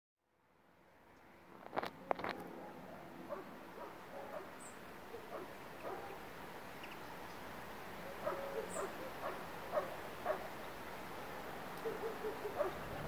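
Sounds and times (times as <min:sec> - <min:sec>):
background hiss: 0:00.5 - 0:13.0.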